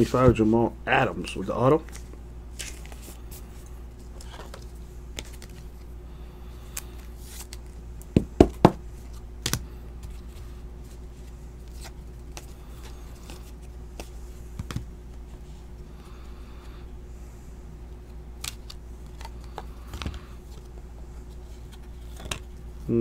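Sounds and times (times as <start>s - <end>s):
cards tapping and rustling: 4.2s - 5.8s, 11.6s - 14.9s, 18.4s - 20.7s, 21.5s - 22.6s.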